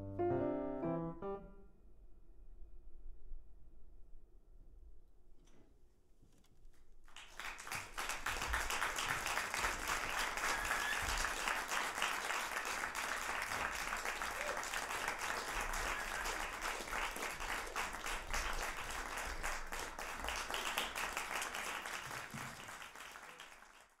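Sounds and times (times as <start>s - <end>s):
audience applause: 7.1s - 24.0s.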